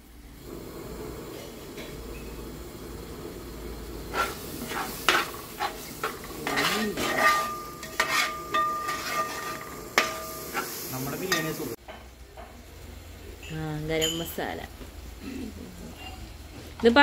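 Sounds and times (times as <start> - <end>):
low sizzle: 0.0 - 17.0
spoon scraping a pan: 4.1 - 11.7, 15.9 - 16.3
spoon clinking against pan: 6.4 - 10.6, 13.4 - 14.3
metallic ringing: 6.4 - 11.6, 13.4 - 14.5.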